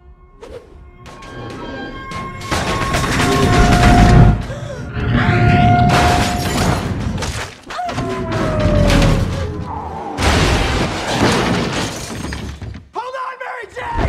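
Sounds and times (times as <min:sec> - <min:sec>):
action film score: 0:00.0 - 0:14.0
crash of metal and debris: 0:01.0 - 0:04.5, 0:05.1 - 0:09.6, 0:10.2 - 0:12.8.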